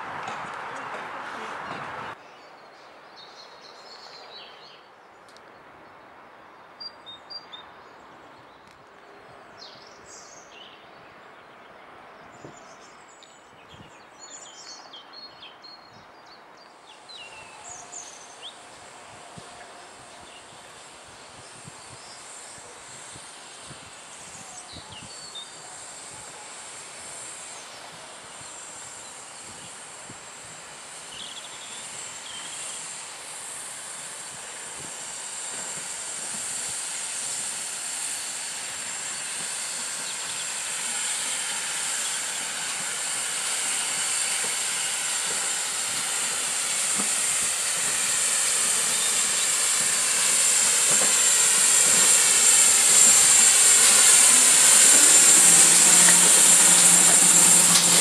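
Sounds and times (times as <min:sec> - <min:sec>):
outdoor background noise: 0:00.0 - 0:58.0
steady high hiss: 0:16.7 - 0:58.0.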